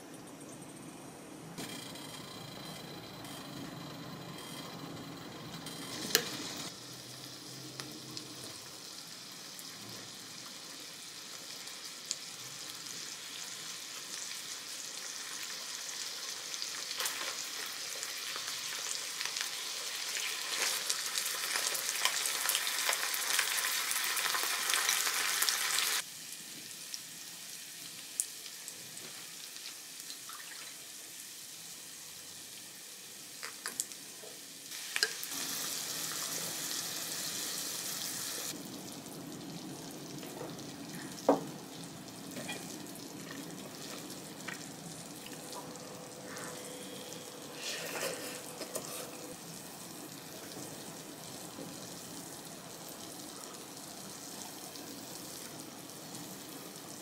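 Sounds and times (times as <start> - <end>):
steak sizzling on hot plate: 5.6 - 30.3, 31.0 - 38.6.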